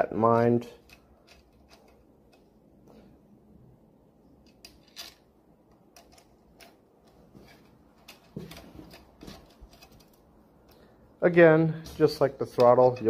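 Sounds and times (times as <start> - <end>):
allen key clicking in screws: 0.8 - 2.5, 4.4 - 10.9.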